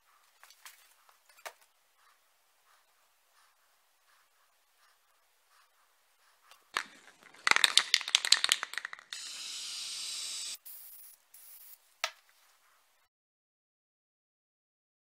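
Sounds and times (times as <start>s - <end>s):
spray can ball rattling: 6.7s - 11.8s
spray paint hissing: 7.5s - 11.8s.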